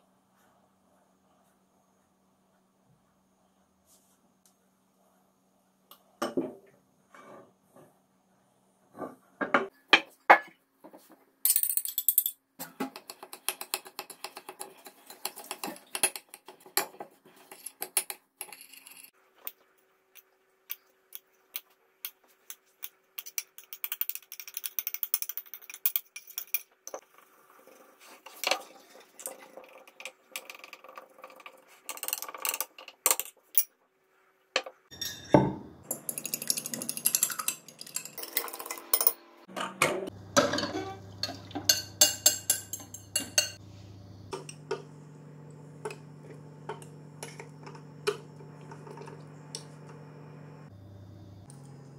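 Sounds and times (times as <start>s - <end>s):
fork beating eggs in glass bowl: 12.8s - 18.2s, 35.9s - 38.7s, 40.8s - 43.6s.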